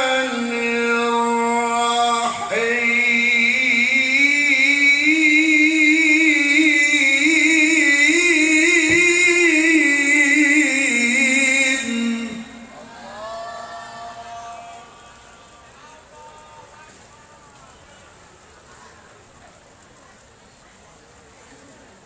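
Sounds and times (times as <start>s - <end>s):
man reciting melodically over pa: 0.0s - 13.2s.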